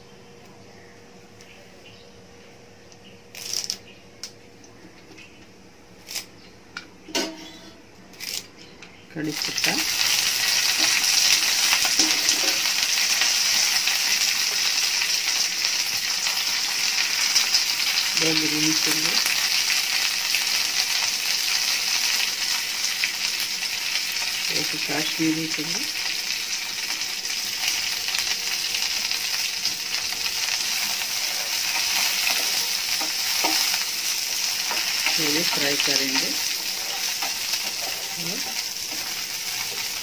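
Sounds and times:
leaves sizzling in hot oil: 0:09.1 - 0:40.0.

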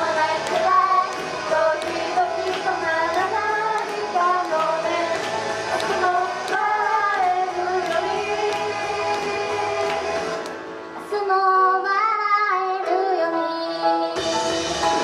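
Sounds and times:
women singing into microphones: 0:00.0 - 0:14.2
pop backing music with beat: 0:00.0 - 0:15.0.

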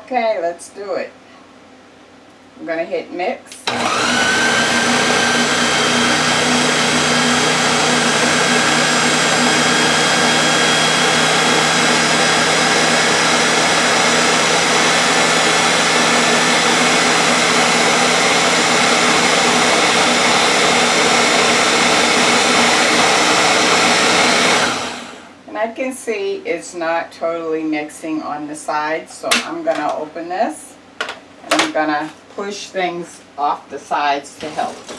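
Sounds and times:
blender motor running: 0:03.6 - 0:25.3.

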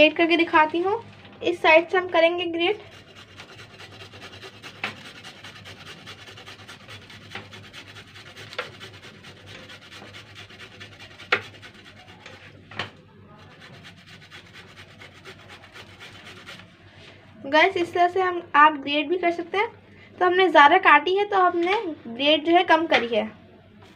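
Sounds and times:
root grated on metal grater: 0:02.5 - 0:12.8, 0:13.4 - 0:16.7.

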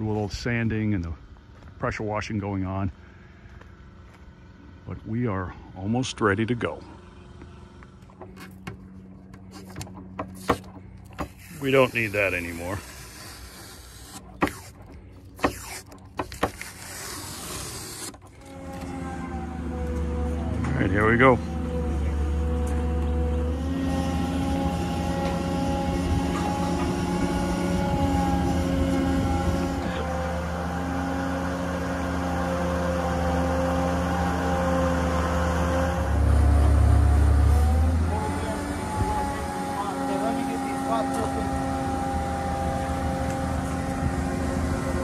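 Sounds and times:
boat hoist engine humming: 0:03.0 - 0:45.0
tape being peeled off: 0:09.5 - 0:19.0.

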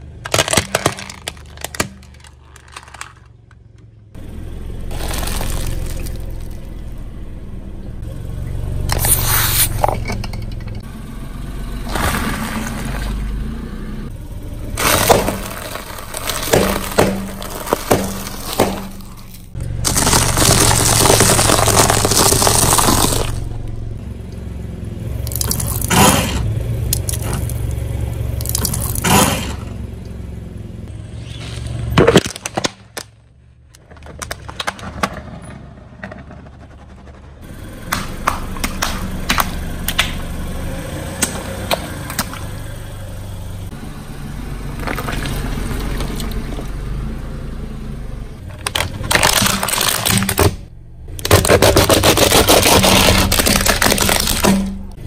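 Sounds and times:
popcorn crunching under tyre: 0:00.0 - 0:03.7, 0:04.8 - 0:06.7, 0:11.8 - 0:13.2, 0:14.7 - 0:23.6, 0:25.2 - 0:27.7, 0:28.4 - 0:29.6, 0:31.3 - 0:33.2, 0:44.8 - 0:46.7, 0:48.5 - 0:50.6, 0:51.2 - 0:55.0
car engine idling: 0:00.0 - 0:55.0
watermelon splitting: 0:00.2 - 0:03.2, 0:04.9 - 0:06.6, 0:14.8 - 0:23.5, 0:25.3 - 0:26.4, 0:48.5 - 0:50.6, 0:51.2 - 0:55.0
plastic toy cracking: 0:00.2 - 0:03.6, 0:19.9 - 0:23.4, 0:32.0 - 0:35.1, 0:48.5 - 0:50.6, 0:51.2 - 0:54.8.

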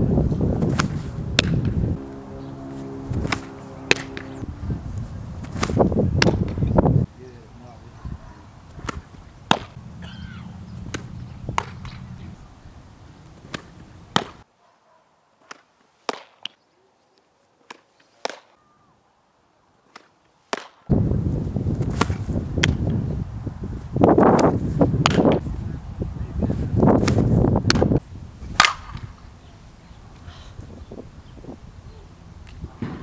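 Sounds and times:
wind rumble on microphone: 0:00.0 - 0:07.1, 0:07.8 - 0:14.1, 0:20.9 - 0:33.0
softball popping into leather mitt: 0:05.4 - 0:06.6, 0:08.8 - 0:09.8, 0:10.9 - 0:12.0, 0:13.4 - 0:14.4, 0:21.8 - 0:22.8.

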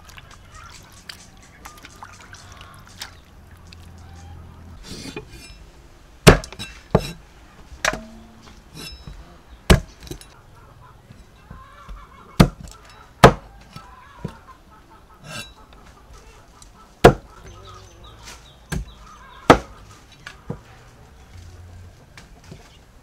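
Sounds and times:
cleaver chopping on wooden block: 0:06.3 - 0:07.2, 0:09.7 - 0:10.0, 0:12.4 - 0:12.6, 0:13.2 - 0:13.4, 0:17.0 - 0:17.3, 0:18.7 - 0:19.7.

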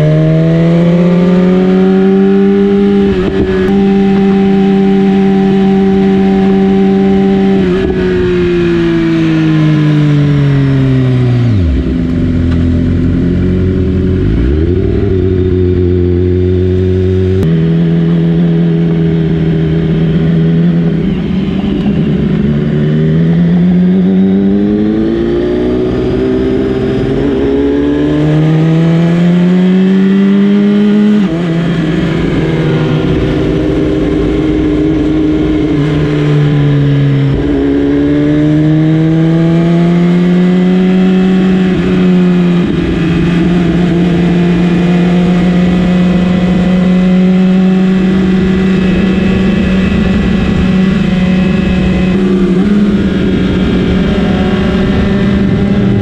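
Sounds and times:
wind noise: 0:00.0 - 0:17.6, 0:18.5 - 0:56.0
motorcycle engine revving: 0:00.0 - 0:56.0.

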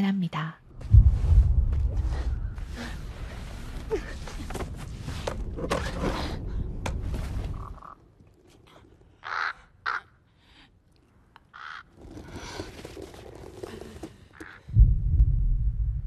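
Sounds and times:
crow cawing: 0:09.2 - 0:10.2, 0:11.5 - 0:11.9.

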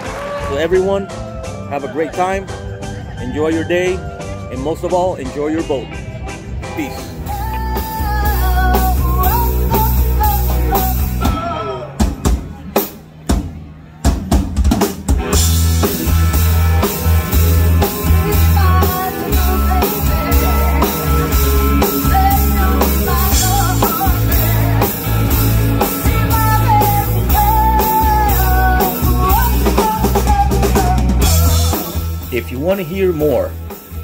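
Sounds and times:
live rock band playing: 0:00.0 - 0:34.0
woman singing: 0:07.2 - 0:11.8, 0:18.1 - 0:31.9.

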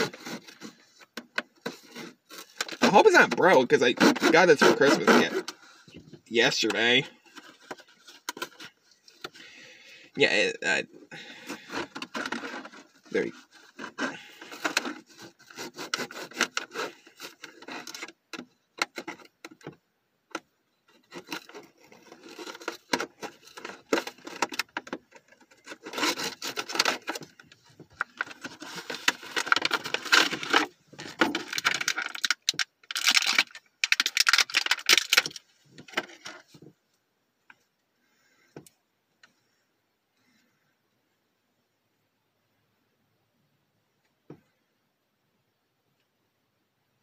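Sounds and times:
packaging crinkling and scraping: 0:00.0 - 0:19.7, 0:20.8 - 0:36.6.

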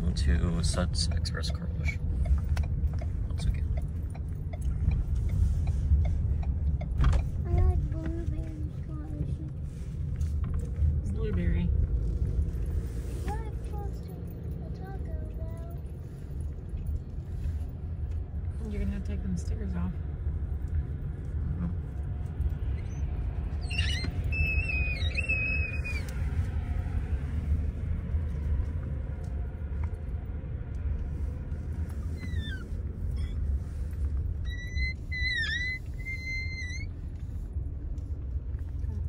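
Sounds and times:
car interior rumble: 0:00.0 - 0:39.0
high-pitched squeaks: 0:22.8 - 0:26.1, 0:34.4 - 0:36.9.

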